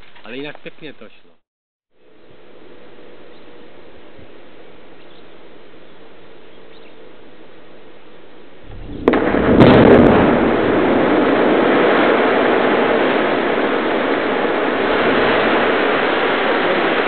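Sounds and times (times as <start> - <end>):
low rumble: 8.7 - 11.4
quarry blast: 8.7 - 17.0
rock and dust rushing down: 8.7 - 17.0
sharp crack: 8.7 - 17.0.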